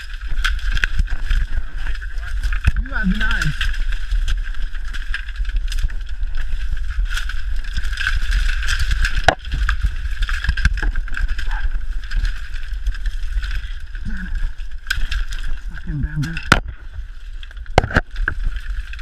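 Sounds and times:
bamboo stalks rustling and scraping: 0:00.0 - 0:19.0
microphone handling rumble: 0:00.0 - 0:19.0
small snaps and knocks: 0:16.3 - 0:16.8, 0:17.5 - 0:19.0.

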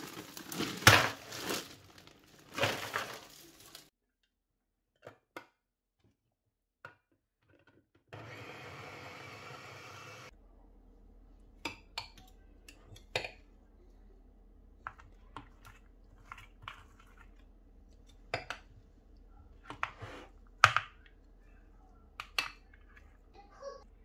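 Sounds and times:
spoon tapping plastic trays: 0:22.1 - 0:22.9.

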